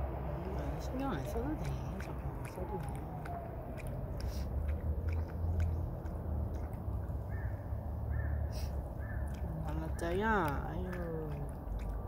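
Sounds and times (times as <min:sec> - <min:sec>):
dog lapping water: 0:00.1 - 0:12.0
bird chirping: 0:04.9 - 0:10.5.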